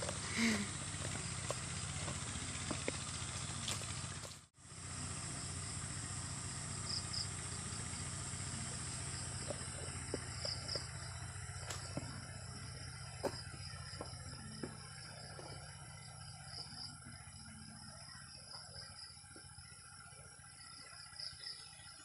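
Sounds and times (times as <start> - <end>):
footsteps on leaf litter: 0.0 - 4.5
insects buzzing: 0.0 - 22.0.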